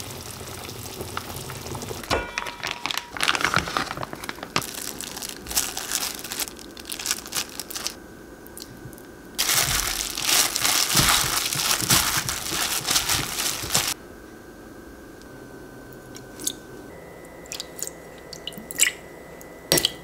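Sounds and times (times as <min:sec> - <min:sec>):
thin plastic crinkling: 0:02.0 - 0:08.0, 0:09.4 - 0:14.0.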